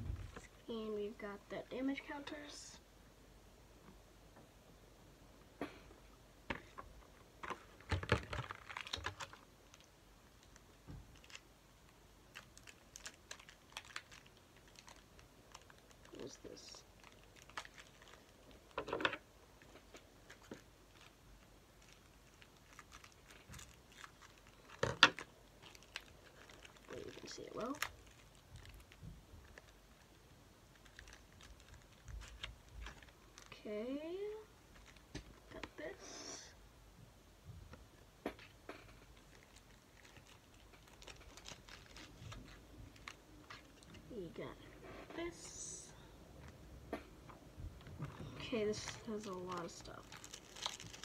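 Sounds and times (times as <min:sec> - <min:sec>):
plastic wrapper crinkling: 0:06.6 - 0:33.6, 0:34.6 - 0:35.7, 0:38.4 - 0:44.1, 0:47.8 - 0:51.0.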